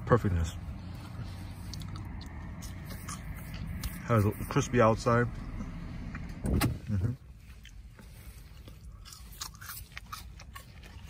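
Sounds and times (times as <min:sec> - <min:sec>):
person chewing crisp fries: 0:01.0 - 0:04.3, 0:07.2 - 0:11.0.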